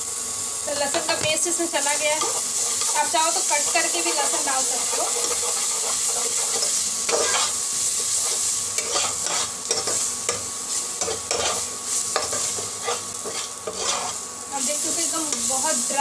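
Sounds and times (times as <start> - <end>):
masala sizzling in a pot: 0.0 - 16.0
metal spatula scraping a pot: 2.2 - 4.3, 4.9 - 10.0, 11.0 - 14.2.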